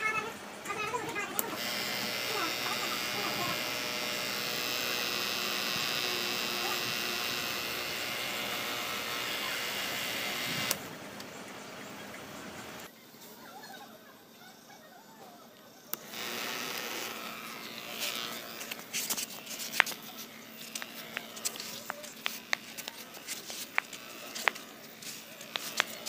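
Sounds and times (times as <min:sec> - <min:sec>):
small electric motor humming: 0:01.3 - 0:10.9, 0:15.9 - 0:26.0.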